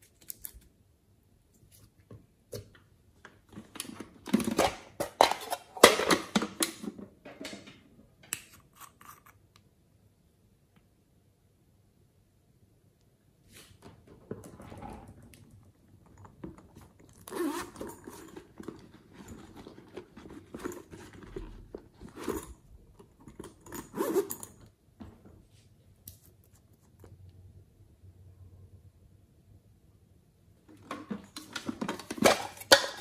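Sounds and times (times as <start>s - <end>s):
plastic containers clicking and scraping: 2.6s - 7.8s, 13.8s - 23.9s, 30.7s - 33.0s.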